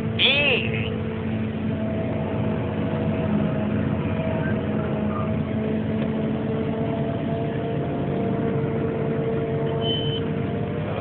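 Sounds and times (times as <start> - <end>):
harvester machine drone: 0.0 - 11.0.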